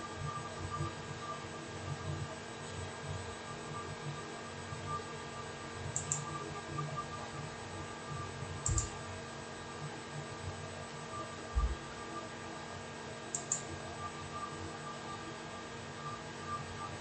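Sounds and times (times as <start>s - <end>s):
steady electrical hum: 0.0s - 17.0s
short clicks: 8.6s - 8.9s, 13.3s - 13.6s.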